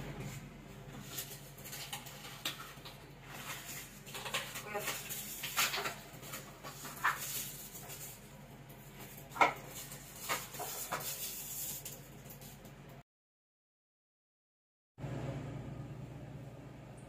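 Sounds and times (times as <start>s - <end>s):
low steady hum: 15.0s - 17.0s.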